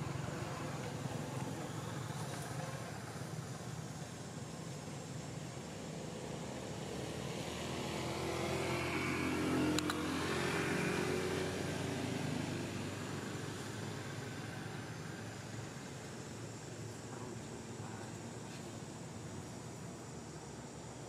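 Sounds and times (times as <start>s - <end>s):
motor vehicle passing: 6.3s - 16.1s.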